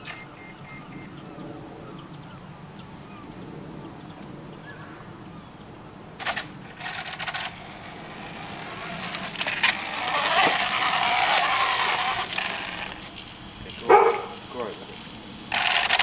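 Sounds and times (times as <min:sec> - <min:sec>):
toy truck rattling on concrete: 0:06.2 - 0:16.0.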